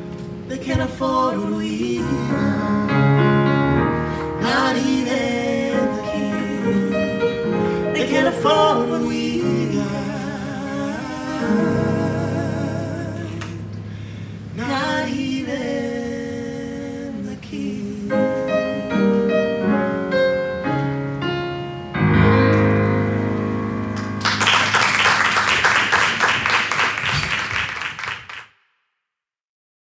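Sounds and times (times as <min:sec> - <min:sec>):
upright piano: 0:00.0 - 0:28.2
person singing: 0:00.5 - 0:03.4, 0:04.1 - 0:13.8, 0:14.6 - 0:20.6
audience clapping: 0:24.0 - 0:28.5.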